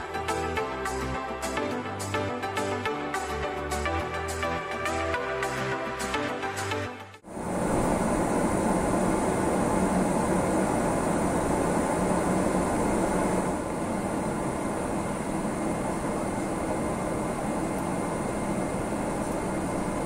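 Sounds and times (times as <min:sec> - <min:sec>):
air conditioning: 0:07.2 - 0:20.0
jet engines rumbling: 0:07.2 - 0:20.0.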